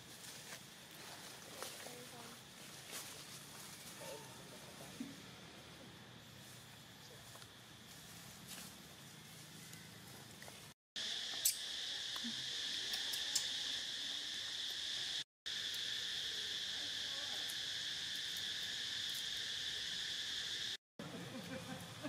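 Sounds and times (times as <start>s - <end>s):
insect chorus chirring: 11.0s - 20.8s.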